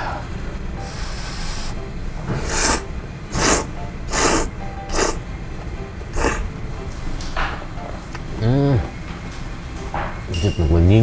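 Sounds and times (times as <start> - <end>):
person slurping noodles: 2.4 - 5.2, 6.2 - 6.5.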